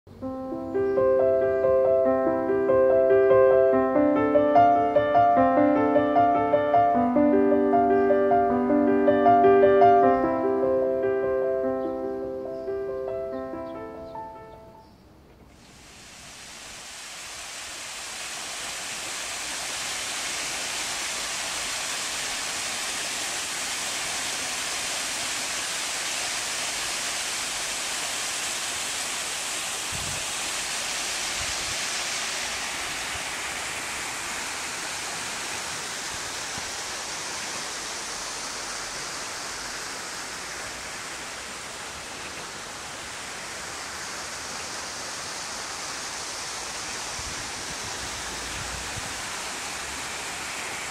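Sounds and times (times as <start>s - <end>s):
waterfall splashing into a pond: 15.5s - 50.9s.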